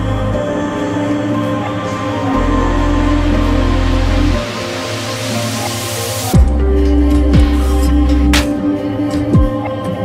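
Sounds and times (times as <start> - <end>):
background music of held chords: 0.0 - 10.0.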